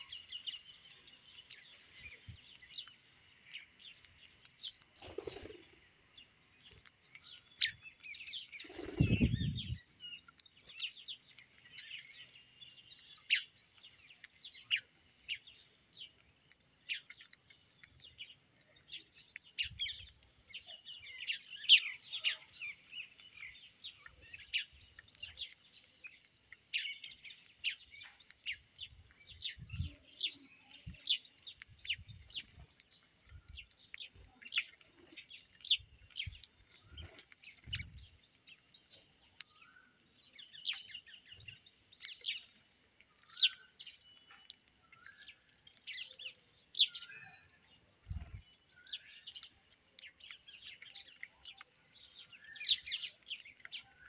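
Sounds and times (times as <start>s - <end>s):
sparrows chirping: 0.0s - 54.0s.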